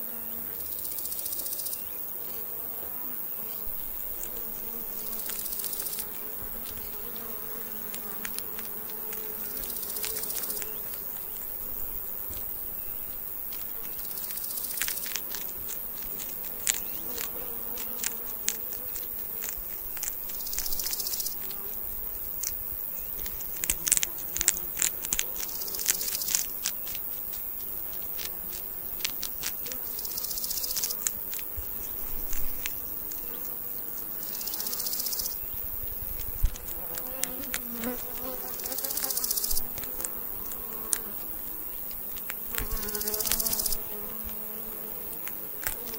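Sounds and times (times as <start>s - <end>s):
high insect buzz: 0.0s - 45.9s
hedgehogs crunching food: 13.1s - 21.6s, 23.2s - 31.5s, 36.1s - 45.9s.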